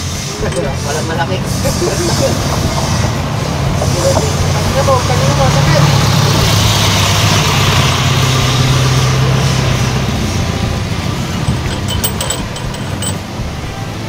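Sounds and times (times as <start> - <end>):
vehicle engine humming: 0.0 - 14.0
metallic clinks of tools: 0.5 - 0.9, 11.4 - 13.2.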